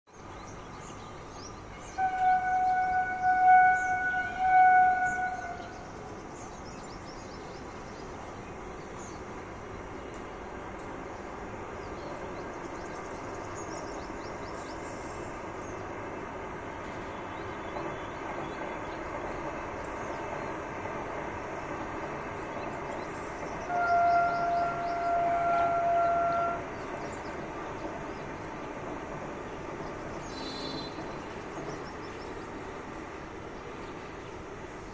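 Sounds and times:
distant train rumbling: 0.2s - 34.9s
train horn: 1.8s - 5.9s, 23.6s - 26.9s, 30.3s - 31.0s.

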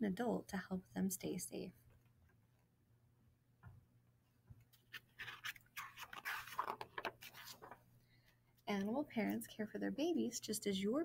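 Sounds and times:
book pages turning: 4.7s - 7.9s.

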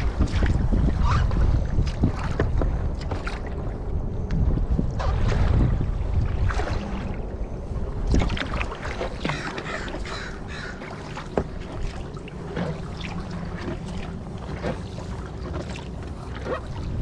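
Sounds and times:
wind rumbling on microphone: 0.0s - 10.7s, 11.3s - 17.0s
kayak paddle splashing and dripping: 0.0s - 17.0s
birds calling: 9.2s - 11.4s.

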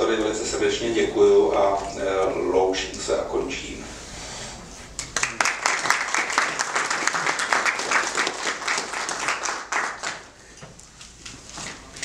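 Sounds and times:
group applauding: 5.0s - 10.4s.

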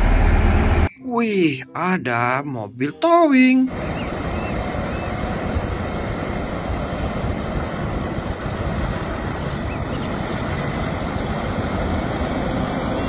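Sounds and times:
truck diesel engine running: 0.0s - 0.9s
road noise: 0.0s - 1.0s, 3.7s - 13.0s.

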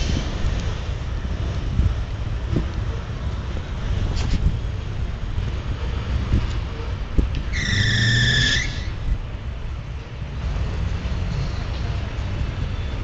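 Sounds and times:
freight train cars rumbling on rails: 0.0s - 13.0s
steel wheel squeal: 7.5s - 9.0s.

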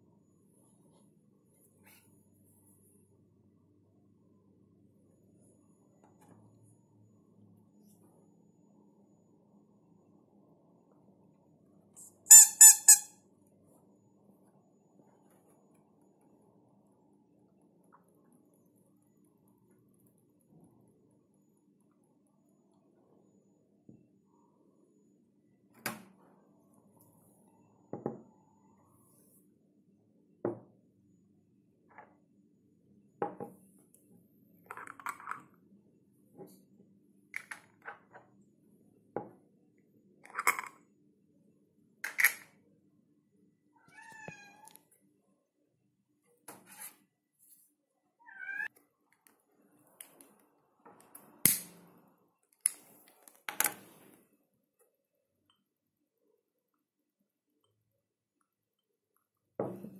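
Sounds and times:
cat meowing: 43.8s - 44.7s, 48.2s - 48.7s.

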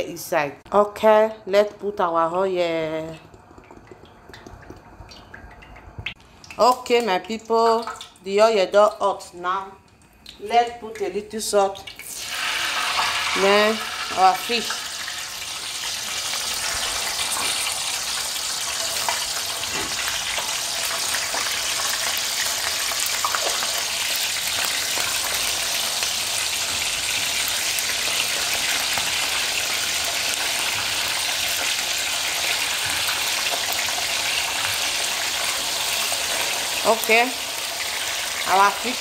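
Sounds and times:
fish frying in hot oil: 11.9s - 39.0s.

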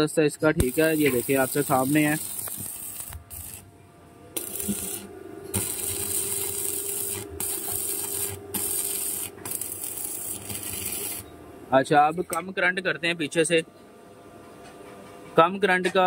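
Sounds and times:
steady hum: 0.0s - 15.9s
welding arc crackling: 0.5s - 3.7s, 4.4s - 11.3s.

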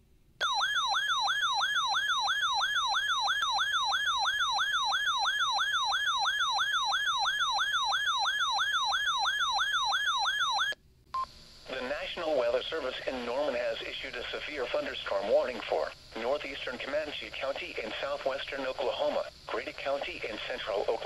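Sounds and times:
weather radio warning siren: 0.4s - 10.8s.

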